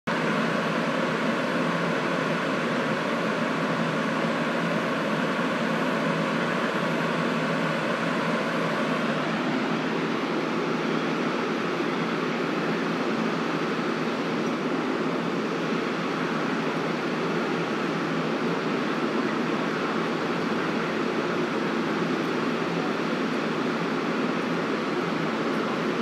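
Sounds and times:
fire truck engines idling: 0.1 - 26.0.

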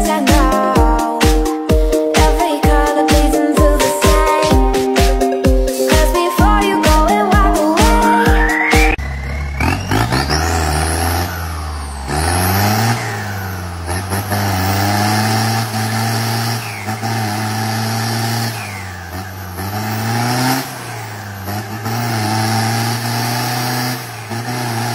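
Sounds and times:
vehicle engine revving: 8.6 - 24.9.

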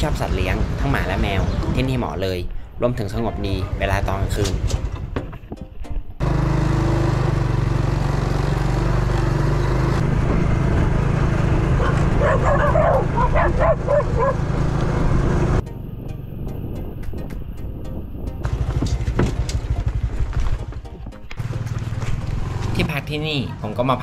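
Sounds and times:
vehicle engine running: 6.2 - 16.7, 18.3 - 24.0
dog barking and yipping: 11.8 - 14.4.

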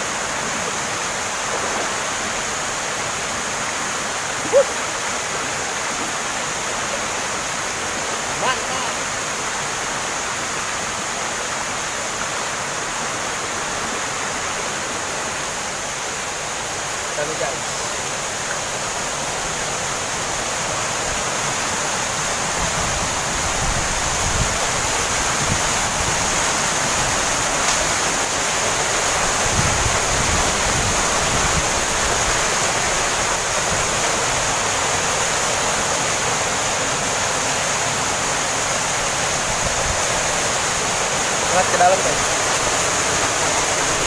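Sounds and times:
waterfall crashing: 0.0 - 44.0.

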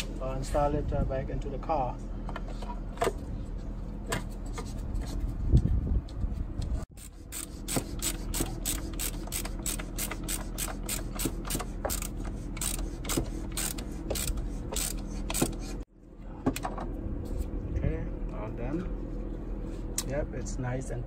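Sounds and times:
ratchet wrench clicking: 7.0 - 15.6.

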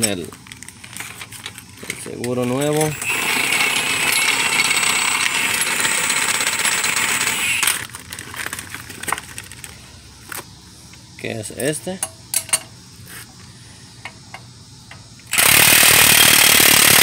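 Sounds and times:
plastic bag crinkling: 0.0 - 2.8, 7.7 - 9.8.

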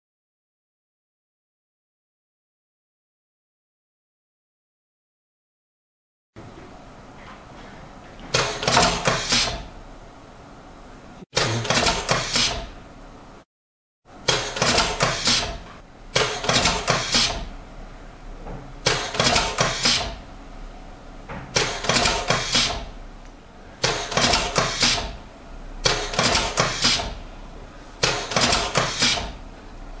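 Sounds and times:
marking machine sharp clacks: 11.4 - 12.7, 14.2 - 17.5, 18.8 - 20.2, 21.5 - 22.9, 23.8 - 25.2, 25.8 - 27.2, 28.0 - 29.4.

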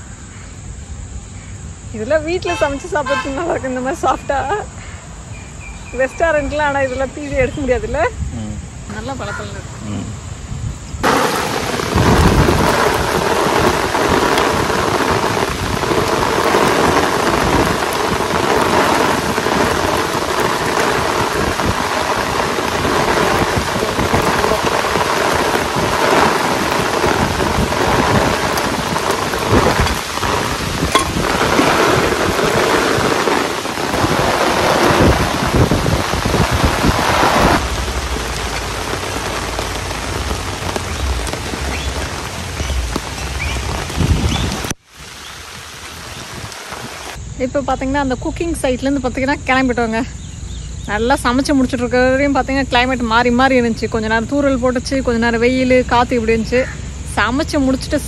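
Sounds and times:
heavy rain pouring: 6.0 - 58.0.

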